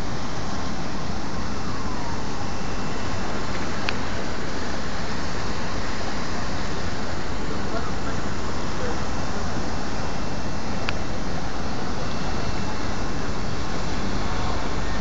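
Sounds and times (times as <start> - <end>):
city traffic: 0.0 - 15.0.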